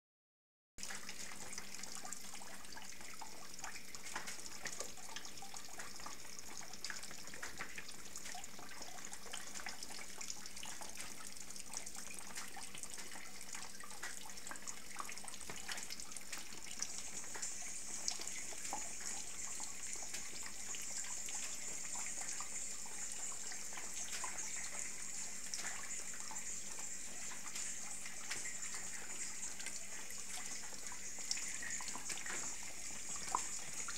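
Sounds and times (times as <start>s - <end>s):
water dripping into bucket: 0.8s - 33.9s.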